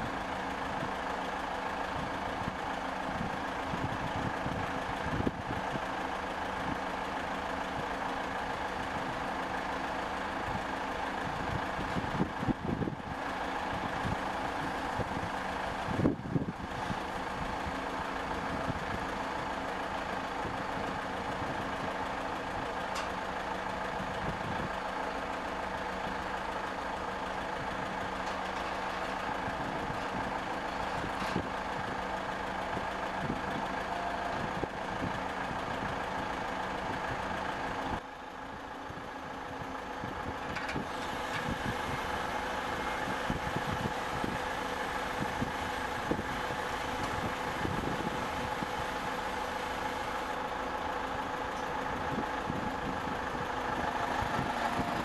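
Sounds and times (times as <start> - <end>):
steady mechanical hum: 25.4 - 55.0.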